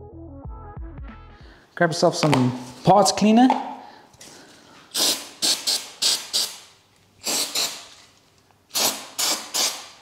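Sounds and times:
aerosol can spraying: 0:04.9 - 0:06.6, 0:08.7 - 0:09.9.

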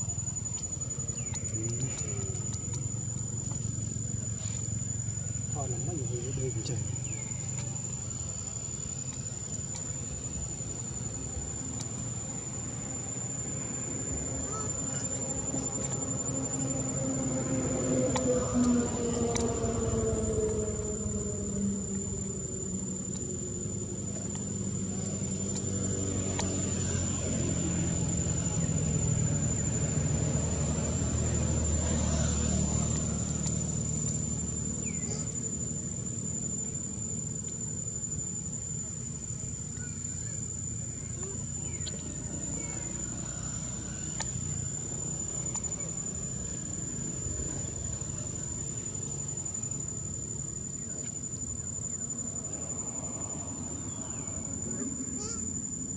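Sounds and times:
insects droning high-pitched: 0:00.0 - 0:55.9
low drone falling in pitch: 0:11.7 - 0:35.7.

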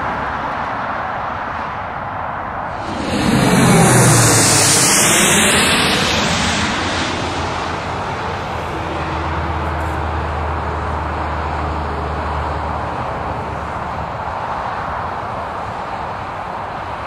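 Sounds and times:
low hum: 0:02.7 - 0:09.9
jet engines passing: 0:02.7 - 0:11.2.

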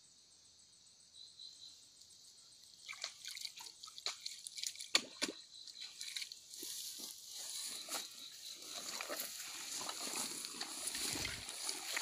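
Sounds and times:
insects chirring: 0:00.0 - 0:12.0
hands splashing in muddy water: 0:02.8 - 0:06.8, 0:08.7 - 0:12.0.

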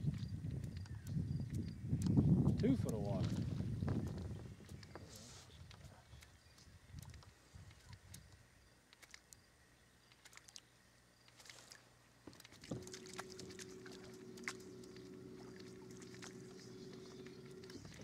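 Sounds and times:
faint clicks: 0:00.1 - 0:03.0, 0:04.6 - 0:09.4, 0:10.1 - 0:10.6
electric trolling motor humming: 0:12.5 - 0:18.0.

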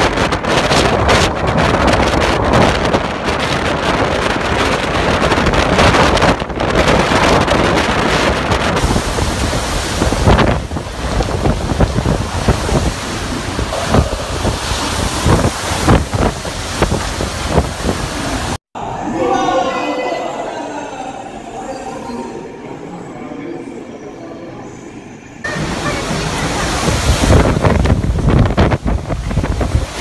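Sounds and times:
strong wind gusts on microphone: 0:00.0 - 0:18.6, 0:25.5 - 0:30.0.

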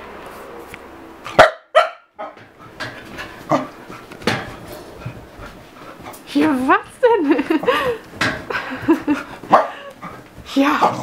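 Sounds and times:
dog barking: 0:01.3 - 0:02.5, 0:09.5 - 0:09.9.

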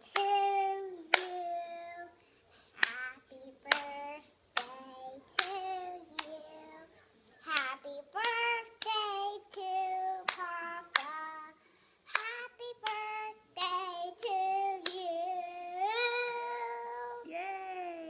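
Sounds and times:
girl singing: 0:00.0 - 0:02.2, 0:02.8 - 0:06.9, 0:07.5 - 0:18.0
hand claps: 0:01.1 - 0:01.3, 0:02.8 - 0:03.1, 0:03.7 - 0:04.0, 0:07.5 - 0:09.0, 0:10.3 - 0:11.2, 0:12.1 - 0:15.0.

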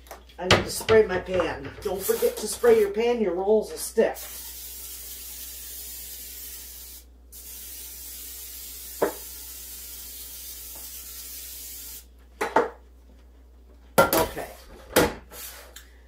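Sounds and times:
aerosol spray hissing: 0:04.2 - 0:12.1.

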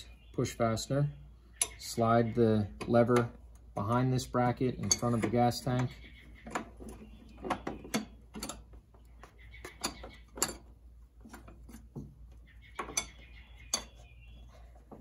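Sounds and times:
metal parts clicking and knocking: 0:02.7 - 0:14.1.

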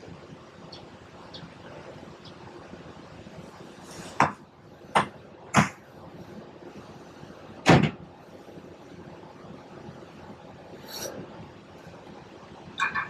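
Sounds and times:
steady low background noise: 0:00.0 - 0:13.0.

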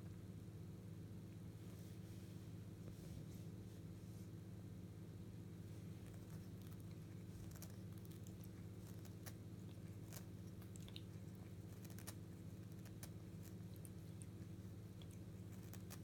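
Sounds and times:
cat licking and chewing: 0:05.8 - 0:16.0.

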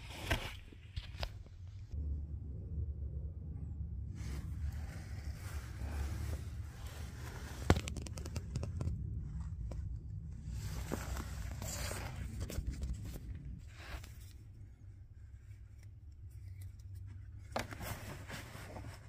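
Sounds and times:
steady low rumble: 0:01.2 - 0:19.0
hands scraping and rustling: 0:04.2 - 0:14.6, 0:15.6 - 0:19.0.

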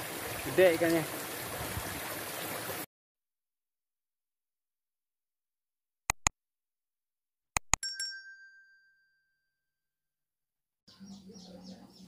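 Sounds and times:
mouse clicks: 0:06.1 - 0:06.3, 0:07.6 - 0:07.8
notification bell ding: 0:07.8 - 0:09.4
birds chirping: 0:10.9 - 0:12.0.

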